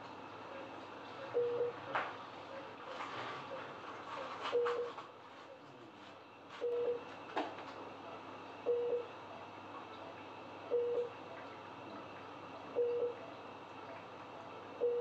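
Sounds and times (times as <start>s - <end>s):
faint steady hum: 0.0s - 15.0s
medical equipment beeping: 1.3s - 1.8s, 4.5s - 5.0s, 6.6s - 7.1s, 8.6s - 9.1s, 10.7s - 11.2s, 12.7s - 13.2s, 14.8s - 15.0s.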